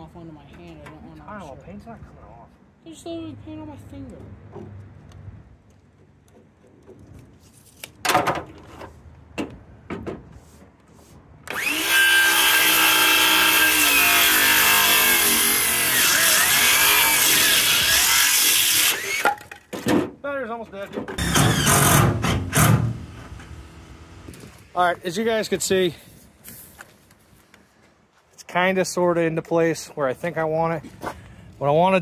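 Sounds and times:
power saw cutting wood: 11.5 - 19.4, 21.2 - 24.4.

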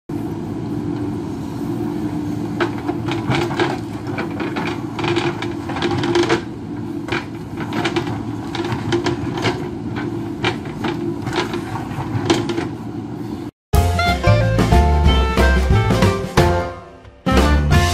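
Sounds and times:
diesel engine running under load: 0.1 - 16.6.

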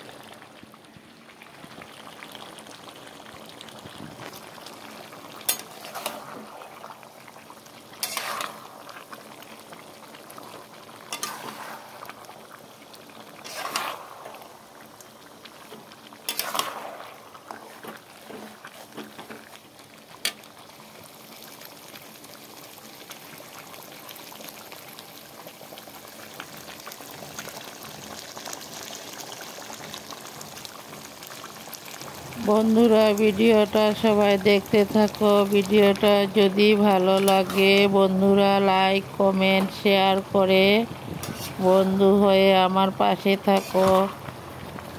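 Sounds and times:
curry bubbling and sizzling: 0.0 - 44.9
metal spatula scraping a pan: 8.0 - 8.6, 11.1 - 11.8, 13.4 - 14.0, 16.3 - 16.7, 37.2 - 37.9, 41.2 - 41.8, 43.5 - 44.1.

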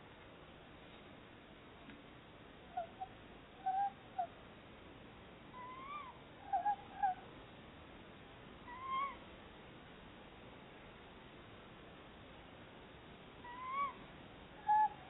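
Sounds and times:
owls calling: 2.7 - 4.4, 5.6 - 7.2, 8.7 - 9.2, 13.4 - 14.0, 14.6 - 15.0.

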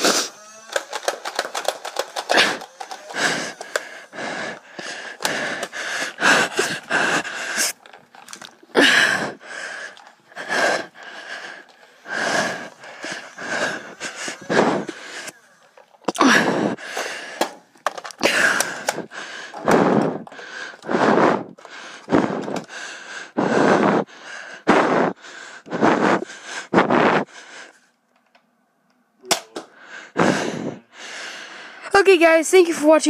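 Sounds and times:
person panting hard: 0.0 - 27.9, 29.6 - 31.9
foam-dart pistol firing snap: 29.3 - 29.7.

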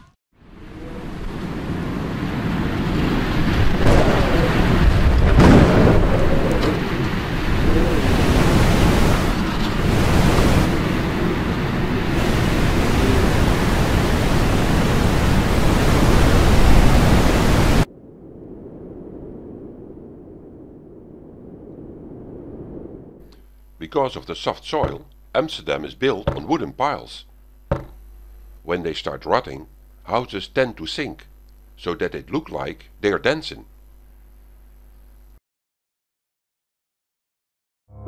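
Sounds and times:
wind: 0.4 - 23.4
heavy rumbling crashes: 2.5 - 12.8
rushing floodwater: 7.3 - 17.9.

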